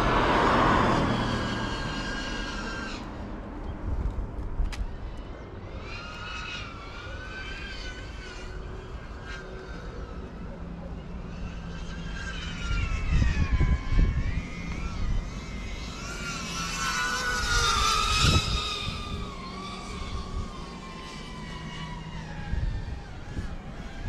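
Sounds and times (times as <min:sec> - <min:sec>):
drone motors whining: 0:00.0 - 0:24.0.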